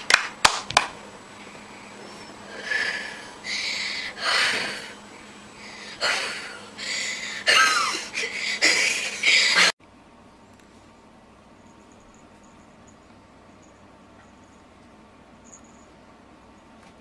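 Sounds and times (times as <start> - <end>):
breathy puffs of air: 1.6 - 9.7.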